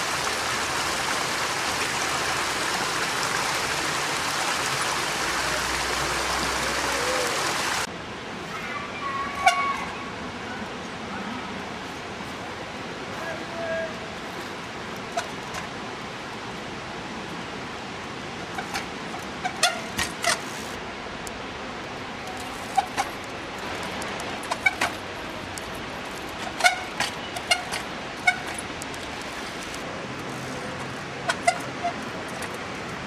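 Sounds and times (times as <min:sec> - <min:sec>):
brakes squeaking: 0:18.4 - 0:20.8, 0:22.2 - 0:33.0.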